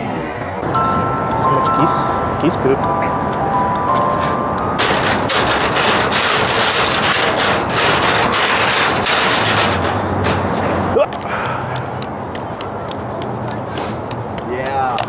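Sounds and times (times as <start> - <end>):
tyre rattling over metal grating: 4.8 - 10.9.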